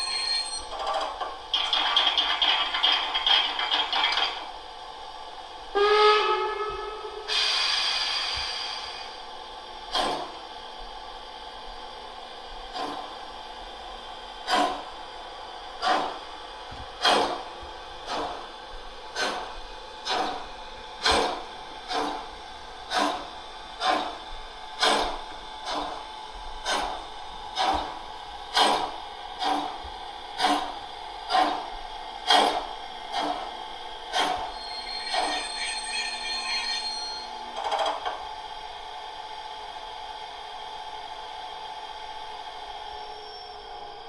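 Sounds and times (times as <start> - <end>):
steam whistle blast: 5.8 - 8.9, 34.5 - 37.3
steam locomotive exhaust chuffs: 5.8 - 11.9, 12.6 - 36.4
steam hiss: 7.3 - 9.2.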